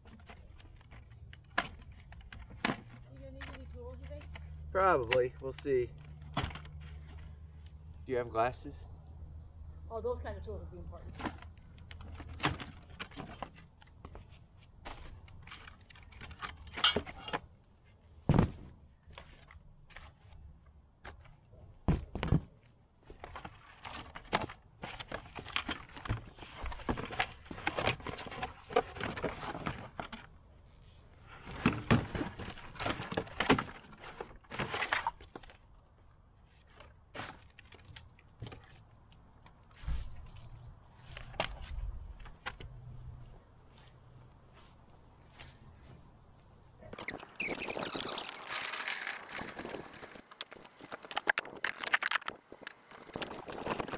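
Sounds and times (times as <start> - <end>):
cardboard and plastic rustling: 0.0 - 4.6, 22.0 - 42.6, 47.0 - 53.9.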